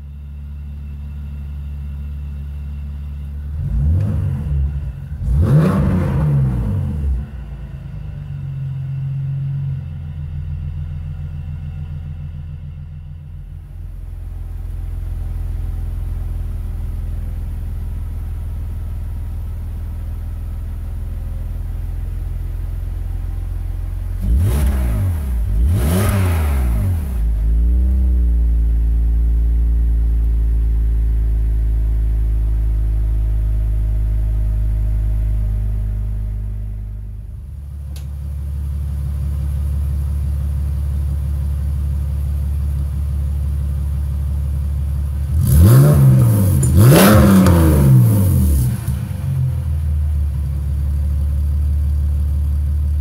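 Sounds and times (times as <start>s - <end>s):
car exhaust idling: 0.0s - 53.0s
engine revving: 3.4s - 9.8s, 24.1s - 28.6s, 45.2s - 49.9s.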